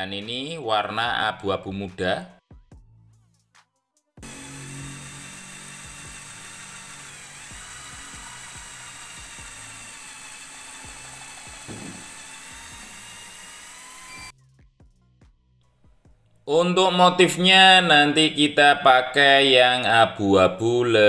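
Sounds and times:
high-pitched motor whine: 4.2s - 14.3s.

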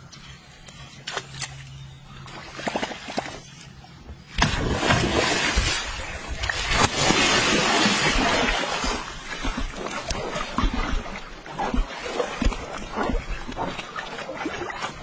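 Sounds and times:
fish splashing in water: 4.4s - 15.0s.

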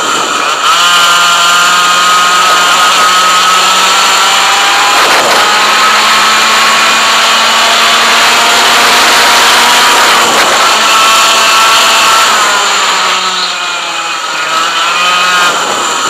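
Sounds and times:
kart engine at high revs: 0.0s - 16.0s.

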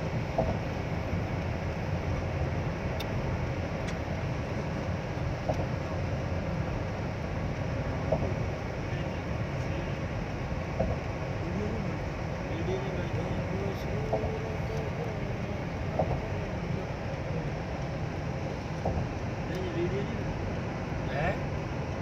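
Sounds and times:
car cabin road noise: 0.0s - 22.0s
faint ticks: 13.1s - 15.2s.

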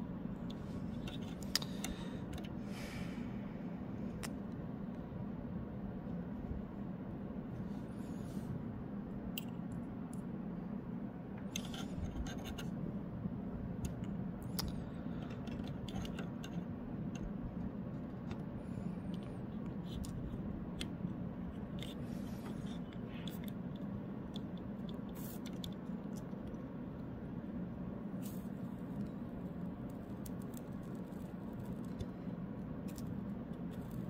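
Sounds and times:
fan humming: 0.0s - 34.0s.

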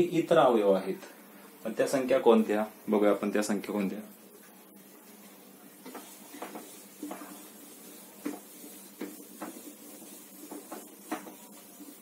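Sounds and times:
duster wiping whiteboard: 5.8s - 12.0s.

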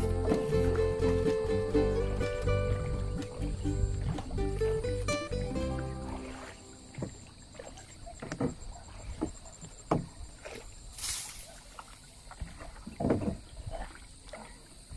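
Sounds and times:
knocks and thumps: 8.2s - 10.2s, 13.0s - 13.4s
hissing splash: 10.9s - 12.3s.

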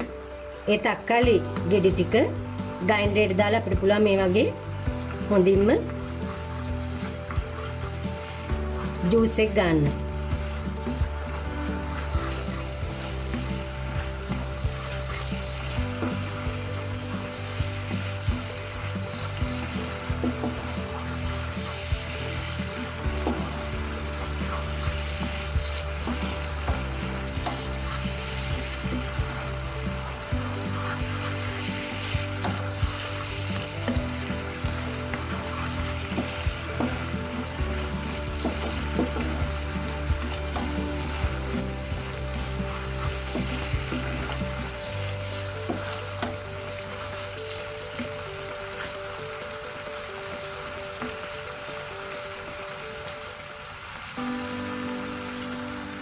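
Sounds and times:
sauce sizzling and bubbling: 0.0s - 56.0s
wooden spatula scraping pan: 4.9s - 48.2s.

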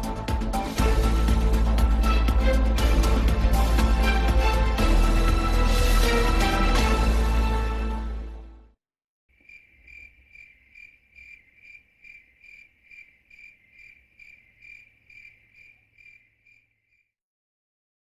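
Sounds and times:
music: 0.0s - 8.8s
cricket chirping: 9.4s - 17.1s.

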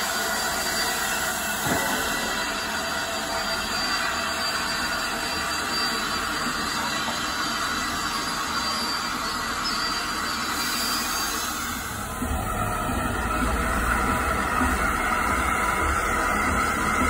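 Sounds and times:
steam locomotive hissing: 0.0s - 17.0s.

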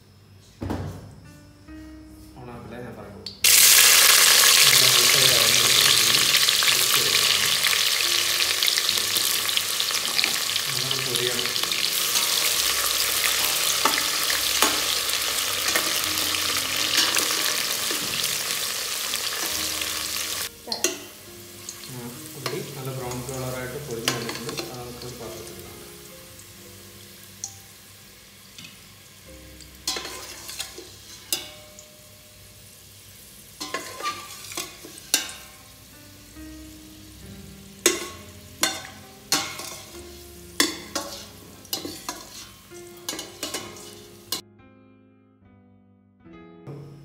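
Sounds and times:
onions sizzling in hot oil: 3.4s - 44.4s
spatula scraping pot: 33.7s - 35.1s, 40.7s - 44.0s.

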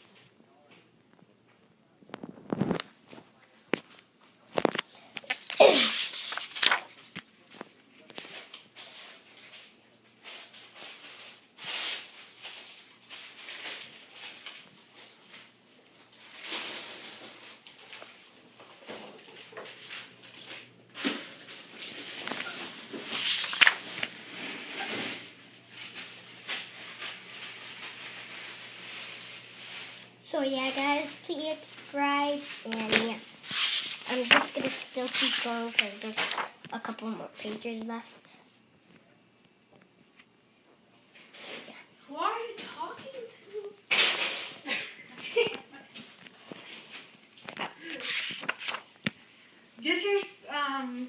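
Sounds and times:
book pages turning: 2.2s - 8.8s, 19.4s - 27.5s, 31.8s - 36.8s, 46.0s - 49.2s.

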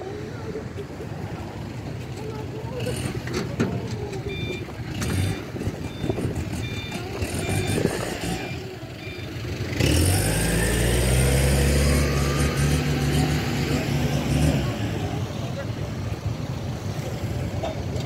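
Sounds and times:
heavy vehicle engine droning: 0.0s - 18.0s
street noise: 0.0s - 18.0s
reversing alarm beeping: 4.2s - 11.1s.

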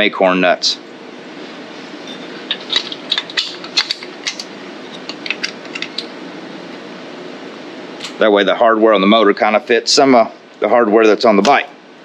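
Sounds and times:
steady background hum: 0.0s - 12.0s
metal bolts and nuts clinking: 2.1s - 6.1s.

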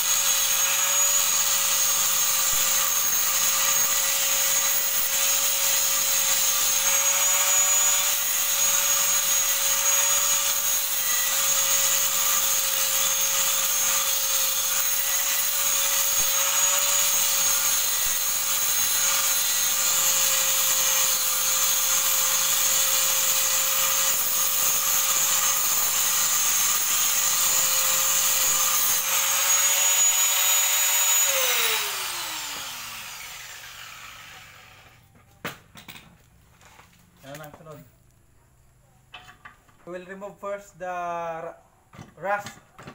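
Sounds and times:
angle grinder grinding steel: 0.0s - 35.0s
grinder winding down: 0.0s - 35.0s.

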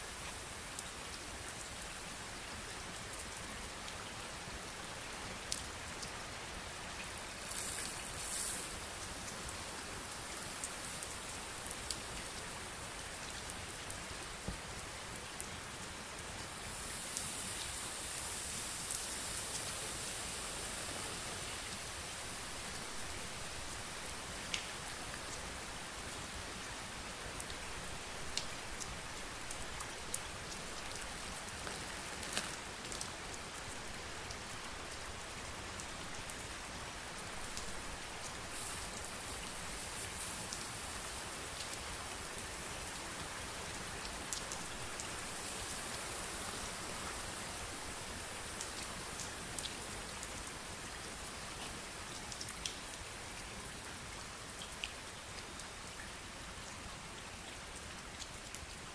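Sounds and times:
plastic cling film crackling: 32.0s - 32.6s.

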